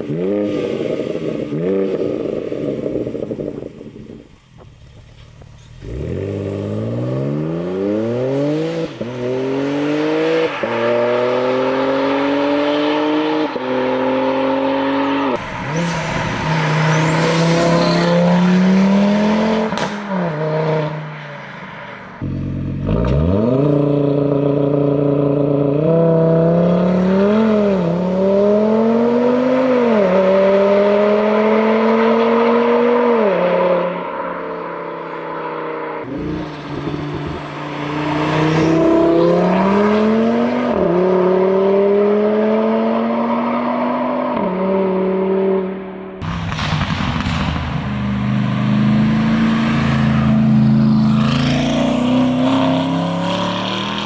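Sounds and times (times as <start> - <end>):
car engines accelerating through gears: 5.5 - 21.1, 22.2 - 34.2, 34.8 - 54.0.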